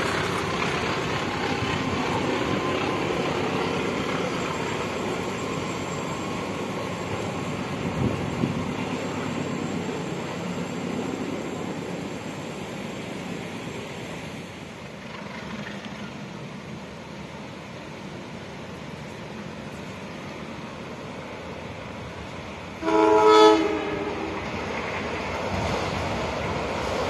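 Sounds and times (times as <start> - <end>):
train rumbling on rails: 0.0 - 27.0.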